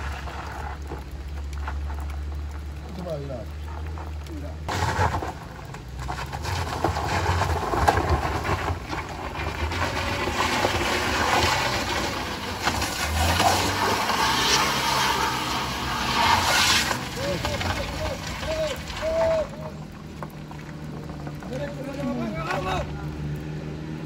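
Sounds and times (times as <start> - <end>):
tyres scrabbling on gravel: 0.0 - 23.3
car engine revving hard: 9.7 - 18.4.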